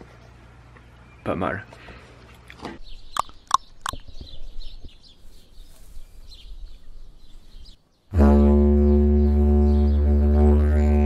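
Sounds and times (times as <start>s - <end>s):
birds calling: 0.2s - 8.1s.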